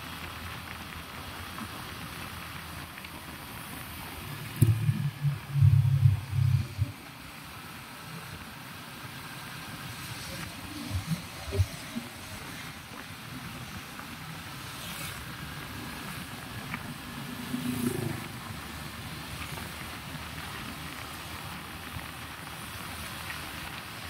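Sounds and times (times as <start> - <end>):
moving vehicle road noise: 0.0 - 24.0
brief low sound: 4.4 - 6.9.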